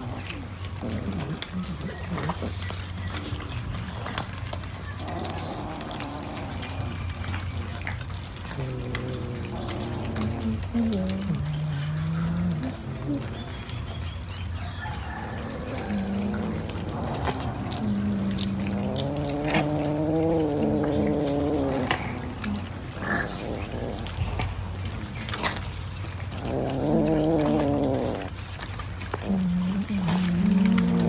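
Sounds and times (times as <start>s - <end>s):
cat low wavering call: 15.3s - 22.9s.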